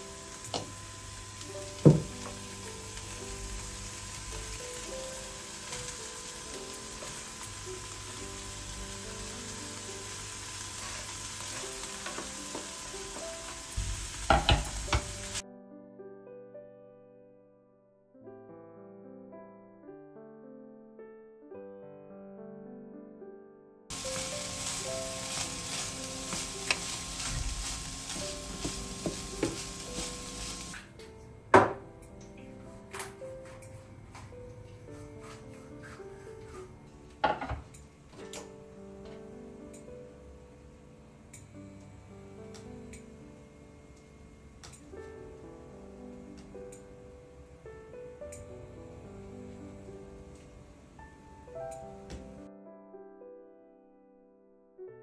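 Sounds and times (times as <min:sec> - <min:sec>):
food sizzling in a frying pan: 0:00.0 - 0:15.4, 0:23.9 - 0:30.9
wooden spatula scraping and stirring: 0:23.9 - 0:30.8, 0:34.8 - 0:36.8.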